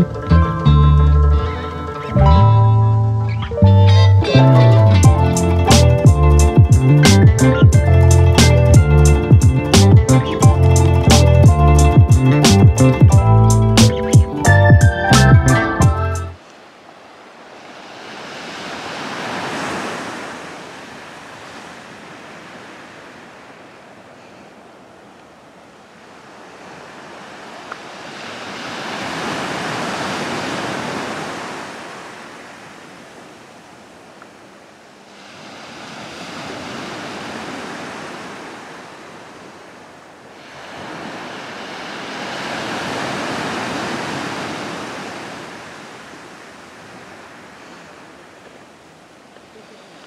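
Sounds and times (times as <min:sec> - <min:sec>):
ocean surf washing ashore: 0:16.4 - 0:50.0.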